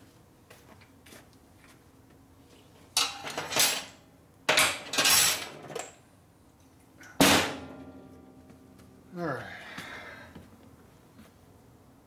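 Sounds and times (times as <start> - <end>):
metal tools clattering: 3.0 - 6.0.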